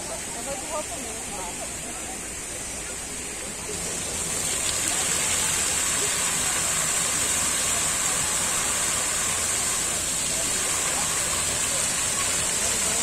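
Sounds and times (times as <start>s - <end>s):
shower water splashing on floor: 3.8s - 13.0s.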